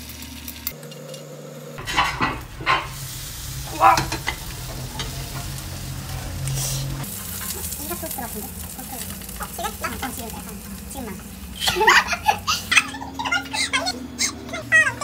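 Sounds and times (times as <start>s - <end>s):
egg sizzling in a frying pan: 0.0s - 13.4s
metal spatula scraping a pan: 1.8s - 8.2s.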